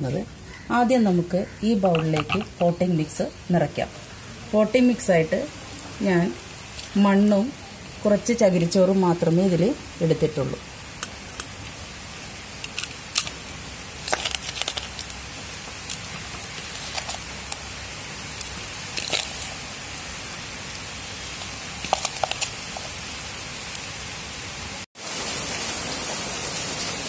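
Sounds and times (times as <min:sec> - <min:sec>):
steady hiss: 0:01.2 - 0:27.0
soil crackling as it falls: 0:12.6 - 0:23.9.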